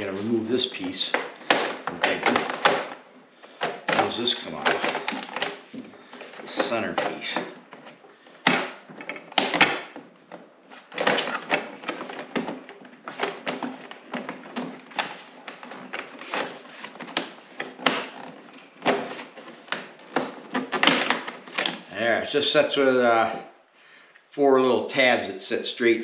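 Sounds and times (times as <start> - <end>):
plastic clicks and knocks: 0.8 - 21.9.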